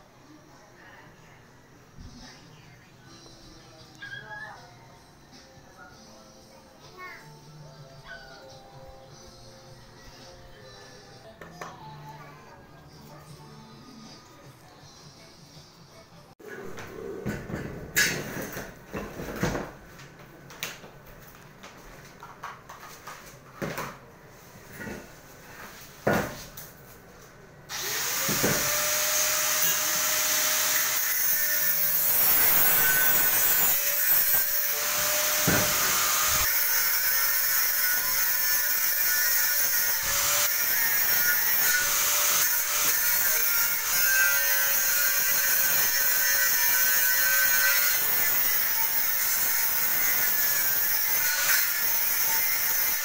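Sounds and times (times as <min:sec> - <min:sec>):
power tool whining: 0:27.7 - 0:37.1.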